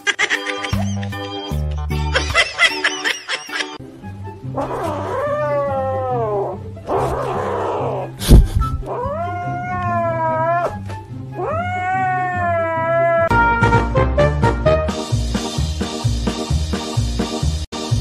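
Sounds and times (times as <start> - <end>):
background music: 0.0 - 18.0
cat yowling: 4.6 - 8.2, 8.8 - 10.8, 11.4 - 13.3.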